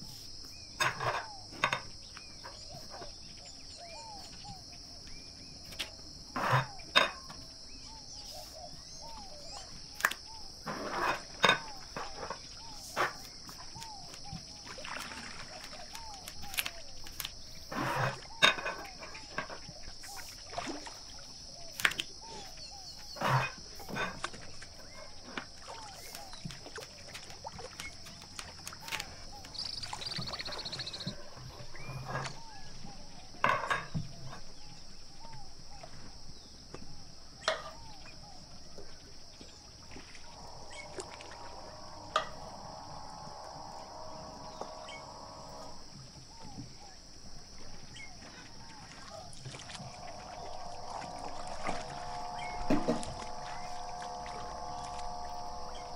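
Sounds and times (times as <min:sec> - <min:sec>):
high insect drone: 0:00.0 - 0:55.9
small chirping calls: 0:25.6 - 0:33.4, 0:39.4 - 0:47.0.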